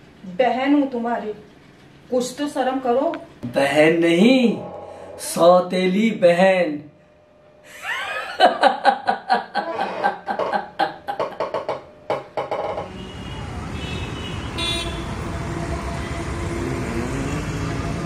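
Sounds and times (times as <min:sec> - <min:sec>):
man laughing hard: 0:07.7 - 0:11.4
busy street traffic: 0:12.7 - 0:18.0
car horn tooting: 0:12.8 - 0:16.2.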